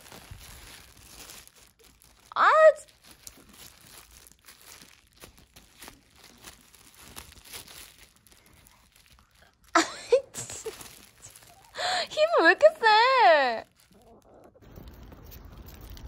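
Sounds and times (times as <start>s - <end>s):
plastic bottle crinkling: 0.0s - 12.8s, 13.5s - 16.0s.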